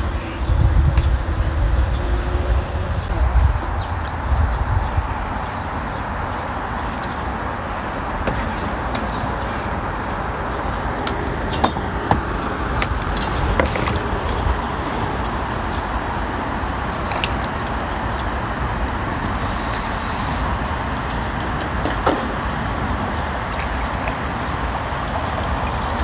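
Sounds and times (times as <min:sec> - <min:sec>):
rushing outdoor background noise: 0:00.0 - 0:26.0.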